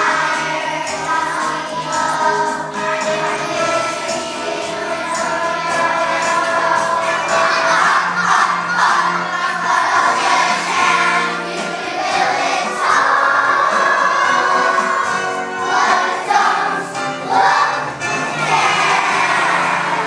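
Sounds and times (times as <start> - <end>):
children's choir singing: 0.0 - 20.0
musical accompaniment: 0.0 - 20.0.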